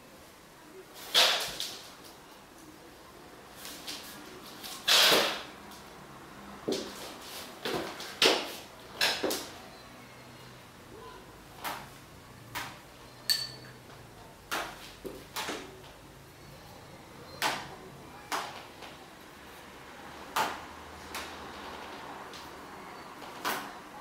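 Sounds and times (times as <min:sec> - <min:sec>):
short ringing clink: 0:13.3 - 0:13.7.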